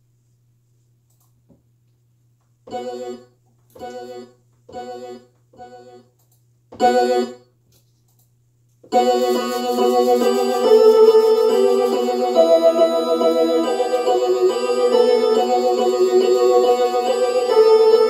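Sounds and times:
organ-like keyboard chords: 2.7 - 6.1, 6.7 - 7.4, 8.9 - 18.0.

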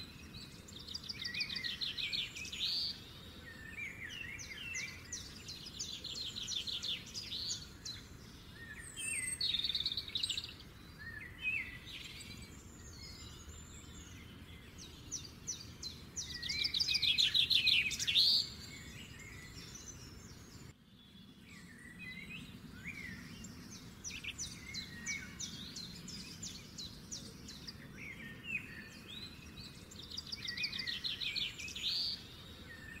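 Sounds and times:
songbirds singing and chirping: 0.0 - 33.0.

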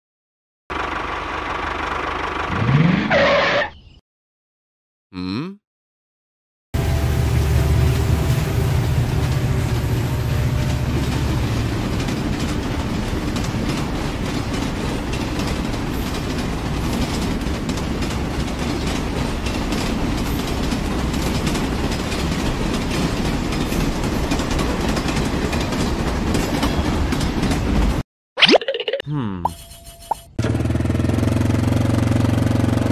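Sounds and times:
large vehicle rumbling: 0.7 - 2.9.

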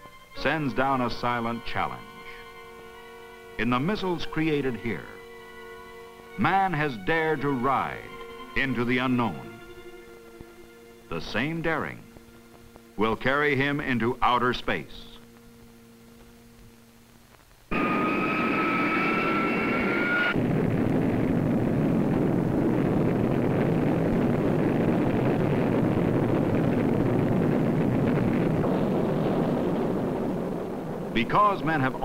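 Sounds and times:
faint hum: 0.0 - 32.0
high rising whine: 0.0 - 32.0
rocket engine roar: 17.7 - 32.0.

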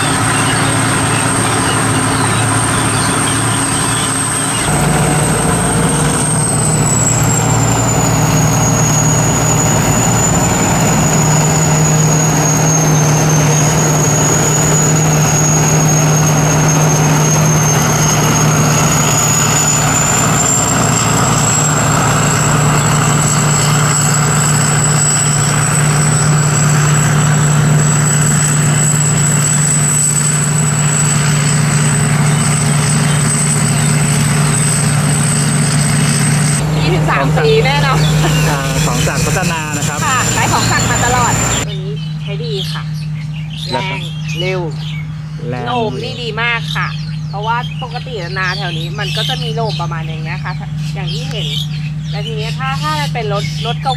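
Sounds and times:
thin high whine: 0.0 - 41.7
combine harvester engine drone: 0.0 - 53.9.

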